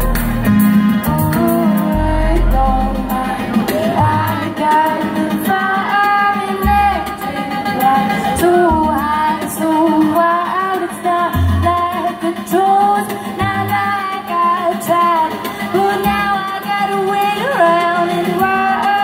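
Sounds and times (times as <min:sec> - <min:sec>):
deep synth bass: 0:00.0 - 0:04.5
electronic beat: 0:00.0 - 0:05.5
woman singing: 0:00.0 - 0:19.0.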